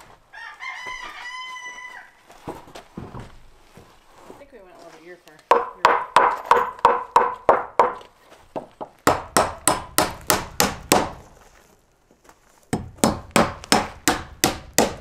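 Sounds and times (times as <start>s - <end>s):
hammer driving nails into wood: 5.5s - 8.0s, 9.0s - 11.2s, 12.7s - 15.0s.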